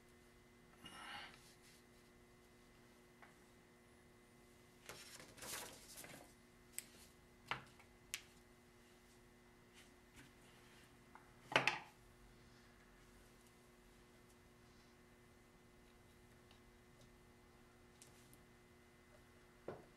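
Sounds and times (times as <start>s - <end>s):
faint steady hum: 0.0s - 19.9s
soft rustle of clay: 1.4s - 3.6s, 4.8s - 7.2s.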